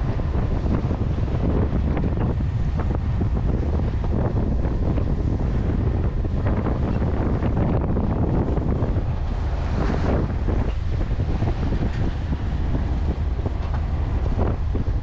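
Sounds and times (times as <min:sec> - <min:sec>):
strong wind on microphone: 0:00.0 - 0:15.0
waves rushing along hull: 0:00.0 - 0:15.0.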